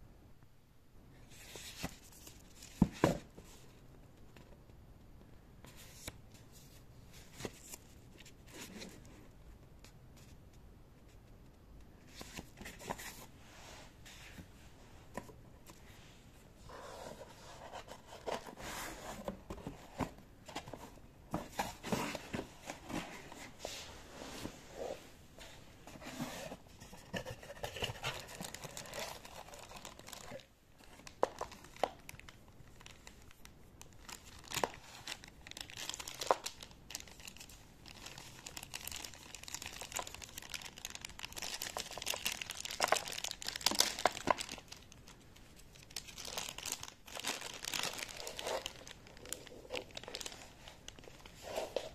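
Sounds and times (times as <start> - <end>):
plastic wrap crinkling: 27.2 - 51.9.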